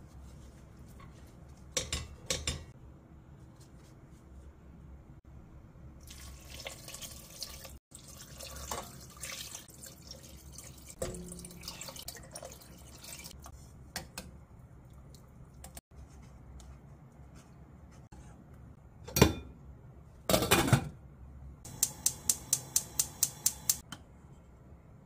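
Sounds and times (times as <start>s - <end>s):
water poured into a pot: 6.0s - 13.4s.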